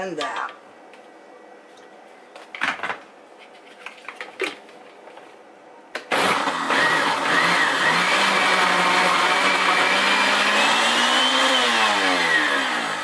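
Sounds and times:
blender motor churning ice: 0:06.1 - 0:13.0.

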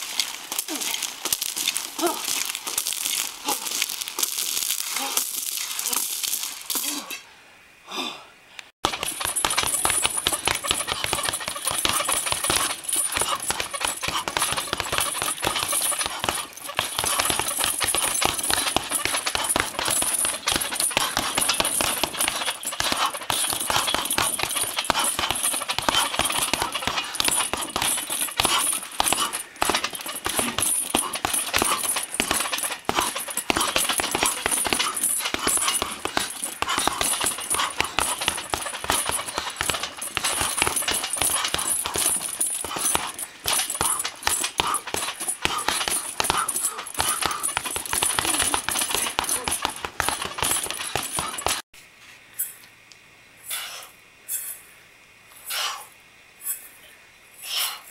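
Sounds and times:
punches on heavy bags: 0:00.0 - 0:03.9, 0:08.8 - 0:51.7.

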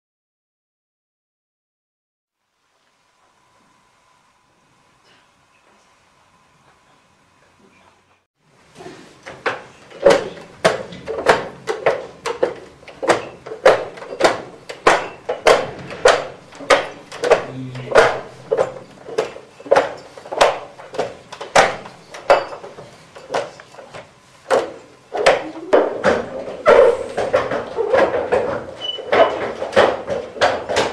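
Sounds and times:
glass bottles clacking in wooden racks: 0:09.4 - 0:30.9.

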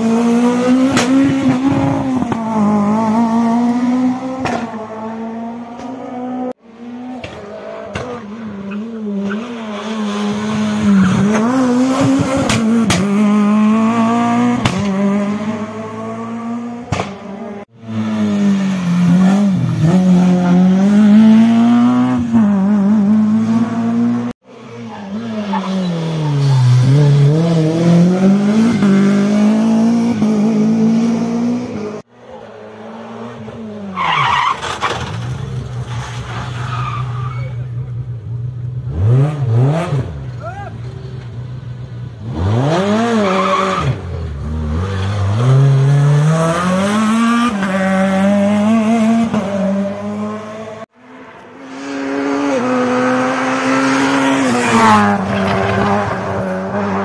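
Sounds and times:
rally car engines revving: 0:00.0 - 0:57.0
tyre squeal: 0:35.9 - 0:37.8.

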